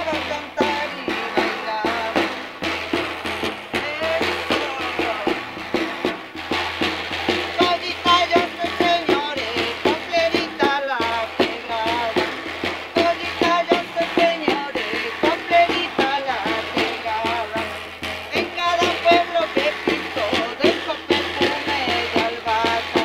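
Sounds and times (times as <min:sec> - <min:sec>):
woman singing: 0:00.0 - 0:02.3, 0:03.8 - 0:05.5, 0:07.6 - 0:12.3, 0:12.9 - 0:17.7, 0:18.3 - 0:23.0
frame drum beating: 0:00.0 - 0:23.0.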